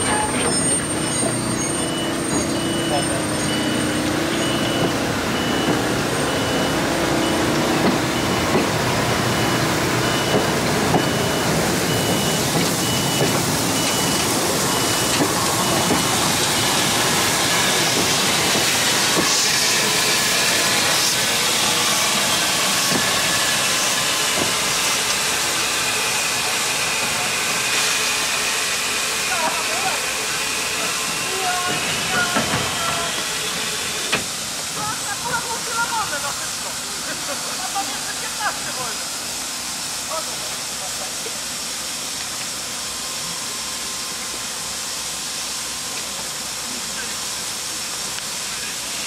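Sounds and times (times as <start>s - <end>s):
steam train hiss and rumble: 0.0s - 49.0s
high electronic beep: 1.6s - 7.5s.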